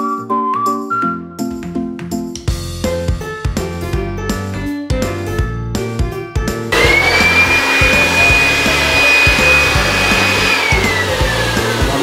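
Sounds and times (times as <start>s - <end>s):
electric blower motor whine: 6.7s - 12.0s.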